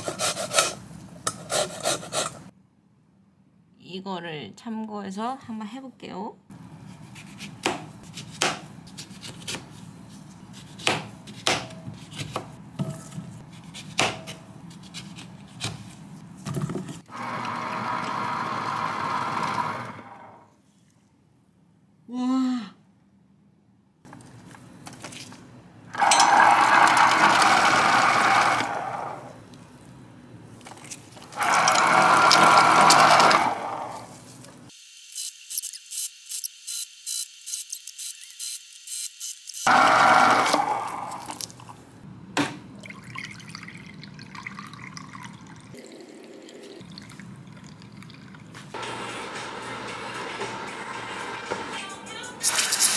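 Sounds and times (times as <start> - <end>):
electric citrus press whirring: 17.1 - 20.5, 25.9 - 29.4, 31.4 - 34.1, 39.7 - 41.4.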